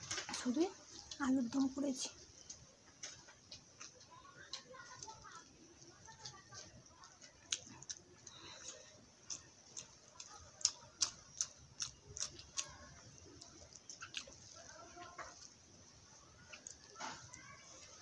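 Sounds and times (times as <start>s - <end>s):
wet chewing and eating by hand: 0.0s - 18.0s.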